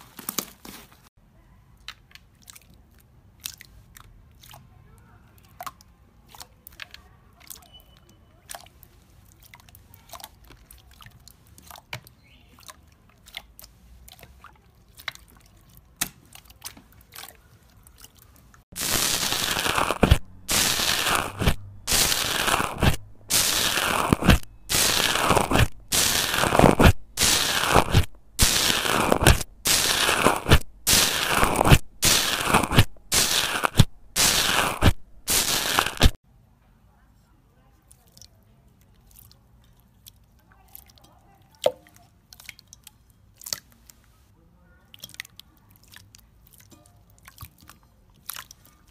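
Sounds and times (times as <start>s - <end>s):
crackling crunches of bubbly slime: 13.2s - 36.2s.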